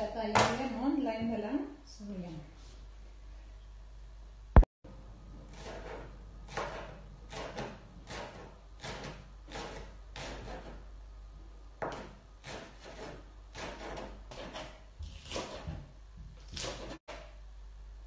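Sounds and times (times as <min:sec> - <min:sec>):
knife chopping on plastic board: 0:05.5 - 0:10.8, 0:11.8 - 0:17.4.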